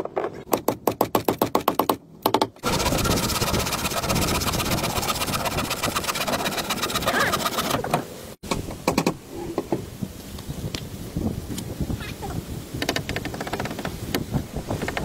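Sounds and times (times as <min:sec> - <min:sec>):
small power tool chattering: 0:02.6 - 0:07.8.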